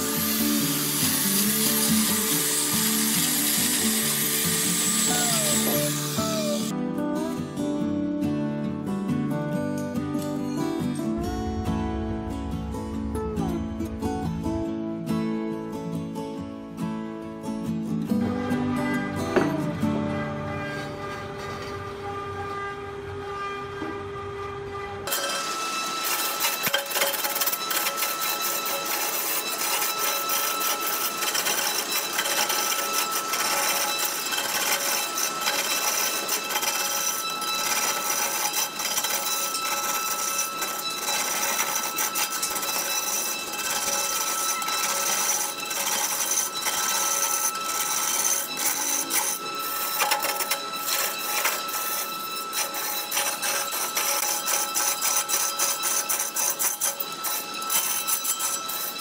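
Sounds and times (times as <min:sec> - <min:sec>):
turning tool scraping wood: 0:00.0 - 0:06.7, 0:25.1 - 0:59.0
lathe high whine: 0:00.0 - 0:06.8, 0:10.6 - 0:16.0, 0:25.0 - 0:59.0.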